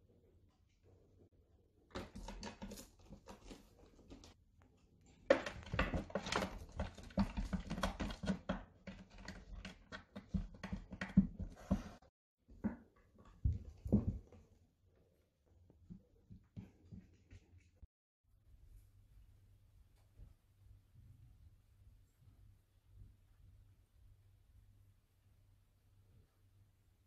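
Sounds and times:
cat claws scrabbling and knocking: 0:01.9 - 0:04.4, 0:05.2 - 0:11.9.

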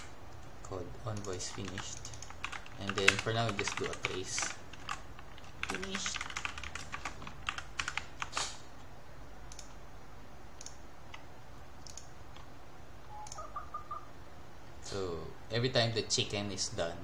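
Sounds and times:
computer keyboard typing: 0:01.1 - 0:08.4, 0:09.5 - 0:09.8, 0:11.8 - 0:12.5, 0:13.2 - 0:13.5.

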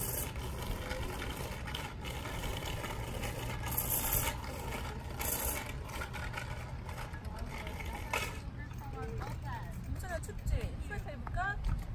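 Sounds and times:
bicycle tyres rolling on pavement: 0:00.0 - 0:11.9.

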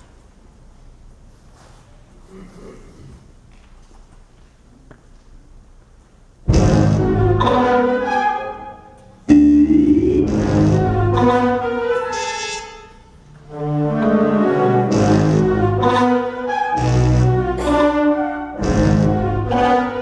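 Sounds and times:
wind band playing accented chords: 0:06.5 - 0:20.0.

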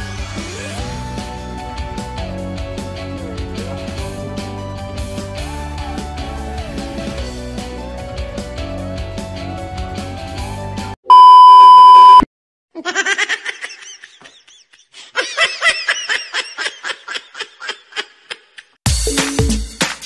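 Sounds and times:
background music: 0:00.0 - 0:11.0
loud steady censor beep: 0:11.1 - 0:12.3.

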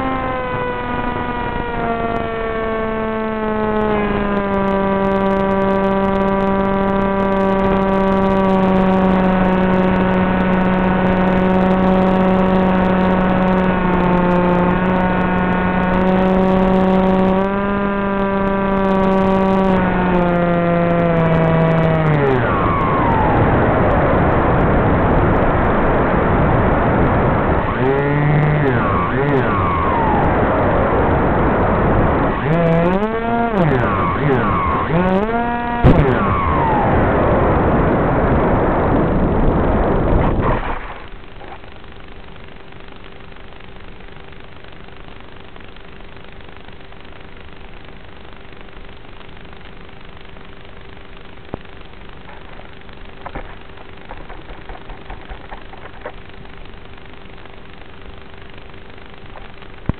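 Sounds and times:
electric motor and propeller buzzing: 0:00.0 - 0:44.4
rushing wind: 0:22.2 - 0:41.7.

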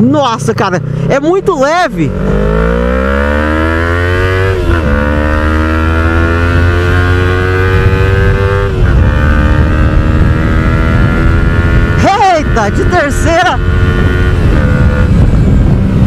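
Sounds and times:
motorcycle engine accelerating: 0:00.0 - 0:16.0.

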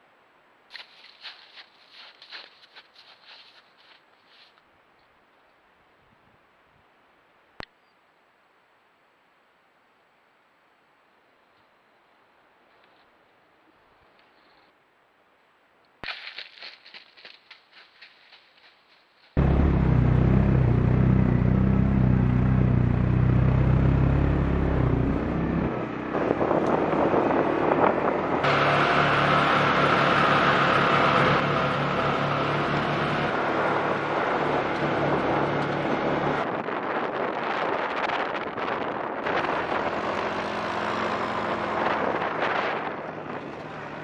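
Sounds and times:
quad bike engine driving: 0:19.4 - 0:44.0.

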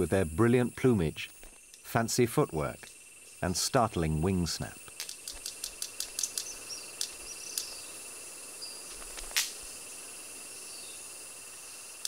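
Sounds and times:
insects droning: 0:00.0 - 0:12.0
bird wing snaps: 0:08.9 - 0:09.6.

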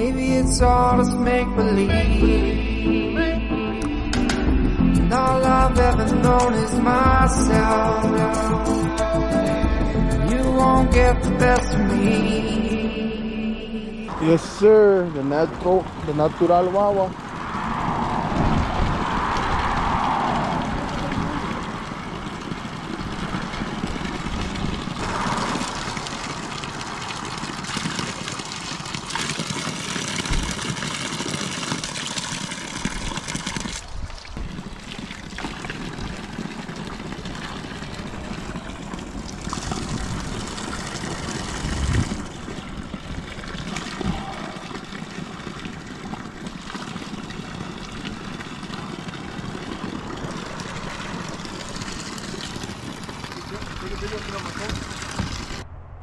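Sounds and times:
steady rushing noise: 0:17.0 - 0:27.7, 0:53.5 - 0:56.0
water stream splattering on stones: 0:20.4 - 0:55.6.

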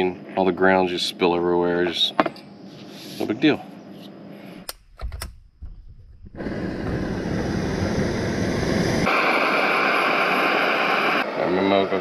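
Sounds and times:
gas stove burner hissing: 0:02.8 - 0:12.0.

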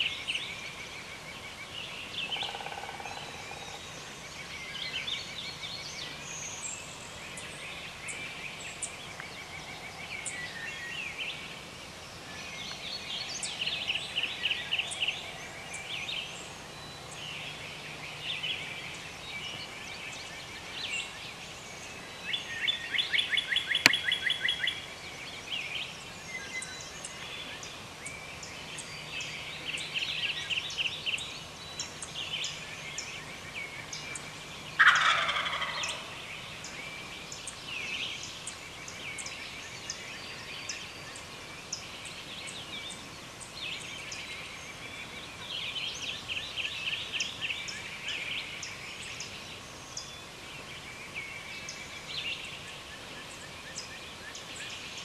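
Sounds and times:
songbirds chirping: 0:00.0 - 0:55.0
turkey gobbling: 0:34.8 - 0:36.1.

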